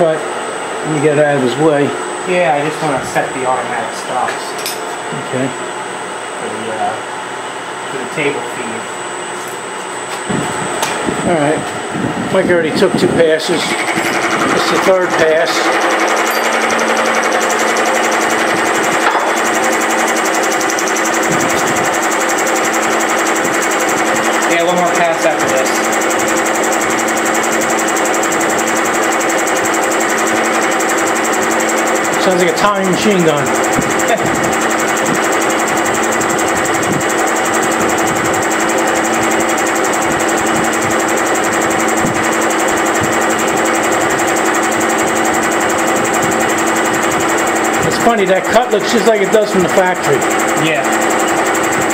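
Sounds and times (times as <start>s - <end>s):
milling machine motor humming: 0.0s - 51.9s
cutter rattling: 13.5s - 51.9s.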